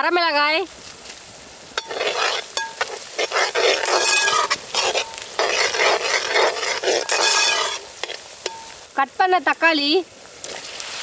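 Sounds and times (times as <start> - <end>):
onions sizzling in hot oil: 0.0 - 11.0
steel ladle scraping pot: 1.8 - 8.8.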